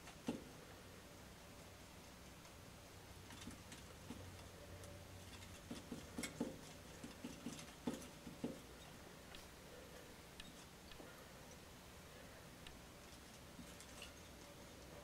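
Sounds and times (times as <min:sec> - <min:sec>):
glass tapping and scraping: 0:05.2 - 0:08.7.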